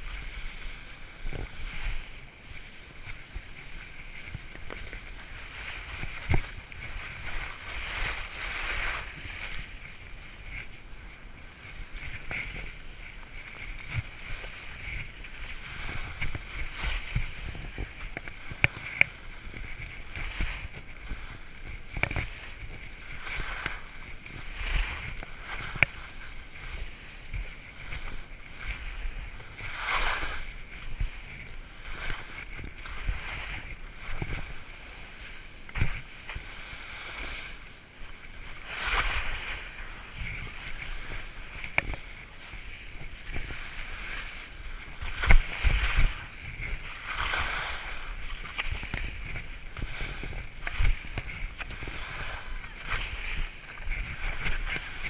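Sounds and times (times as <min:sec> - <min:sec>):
skis scraping through slushy snow: 0:00.0 - 0:55.0
ski chatter clicks: 0:11.8 - 0:37.6, 0:38.4 - 0:55.0.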